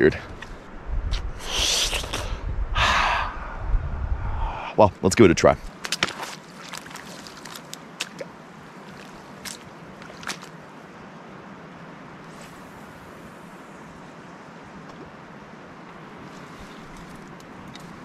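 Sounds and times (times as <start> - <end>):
lake water lapping at shore: 5.7 - 10.9.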